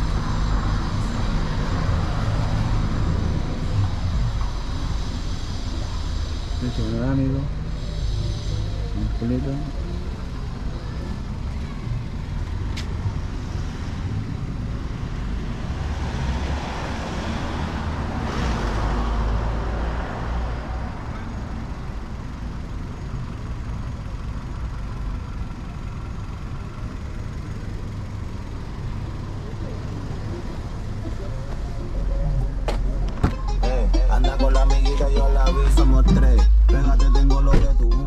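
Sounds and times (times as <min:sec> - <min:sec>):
street traffic rumble: 0:00.0 - 0:38.0
vehicle passing: 0:29.6 - 0:38.0.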